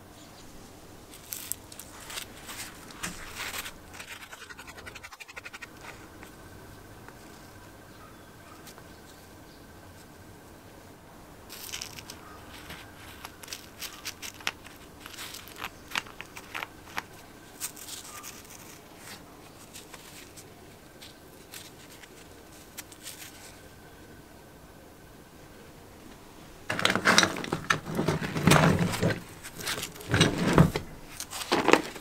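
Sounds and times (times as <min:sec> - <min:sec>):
faint steady hum: 0:00.0 - 0:32.0
small metal clicks and scrapes: 0:01.1 - 0:06.3, 0:11.5 - 0:23.6, 0:26.7 - 0:32.0.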